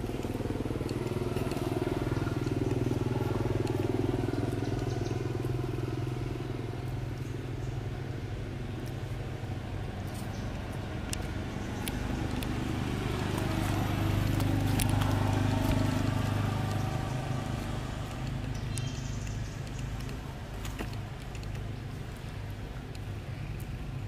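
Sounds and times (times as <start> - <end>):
low motor engine hum: 0.0 - 24.0
small clicks: 10.0 - 12.6, 14.2 - 23.8.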